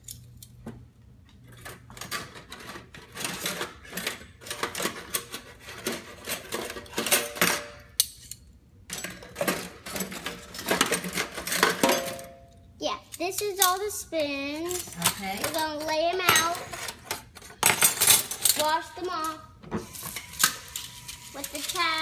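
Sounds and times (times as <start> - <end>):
metal cutlery clinking in a sink: 1.6 - 12.4, 14.6 - 18.8.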